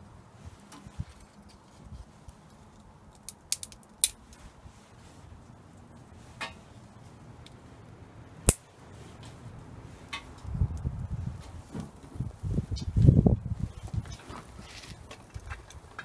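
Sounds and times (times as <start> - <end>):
wood fire crackling and snapping: 0.5 - 16.0.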